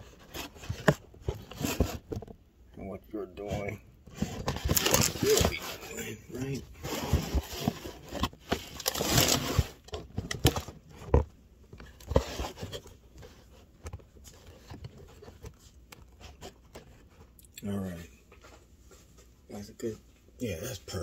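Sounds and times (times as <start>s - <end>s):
phone handling scraping and rustling: 0.0s - 2.4s, 3.4s - 17.4s.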